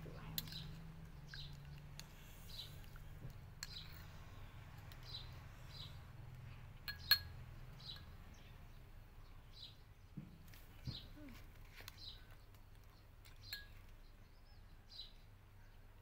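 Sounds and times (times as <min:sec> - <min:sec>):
bird chirps: 0:00.2 - 0:10.2, 0:10.8 - 0:15.8
metal spoon clinking on ceramic: 0:00.3 - 0:00.8, 0:03.6 - 0:04.1, 0:06.8 - 0:08.1, 0:13.5 - 0:13.8.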